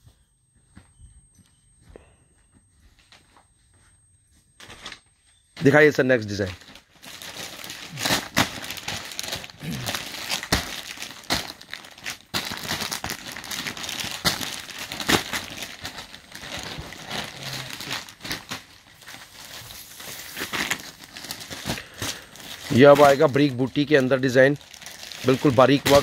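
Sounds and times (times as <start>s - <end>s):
packaging crinkling and rustling: 5.6s - 26.0s.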